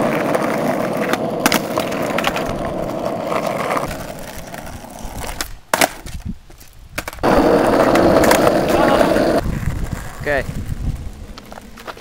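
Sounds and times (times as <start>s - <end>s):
skateboard deck clacks: 0.0s - 6.2s, 7.0s - 10.1s
skateboard wheels rolling on asphalt: 0.0s - 12.0s.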